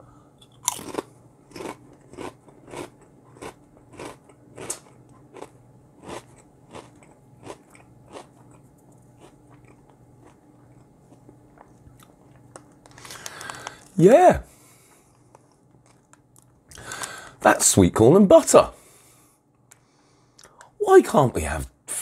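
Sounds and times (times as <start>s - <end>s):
faint chewing: 0.4s - 13.9s.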